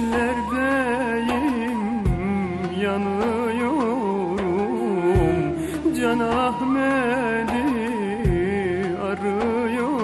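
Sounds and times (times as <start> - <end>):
ornamented melody with bending pitch: 1.2 - 9.8.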